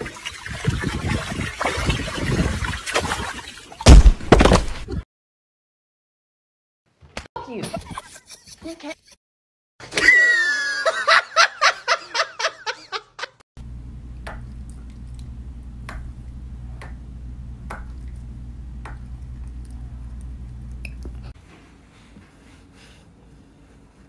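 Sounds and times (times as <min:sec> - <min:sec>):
low steady hum: 0:13.6 - 0:24.0.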